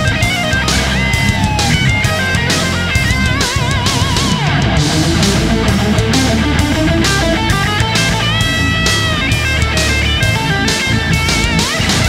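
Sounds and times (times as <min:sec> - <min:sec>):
rock music with electric guitar: 0:00.0 - 0:12.0.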